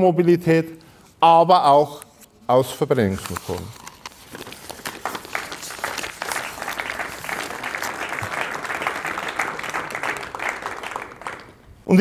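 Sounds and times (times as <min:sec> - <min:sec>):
audience applauding: 0:04.8 - 0:11.7.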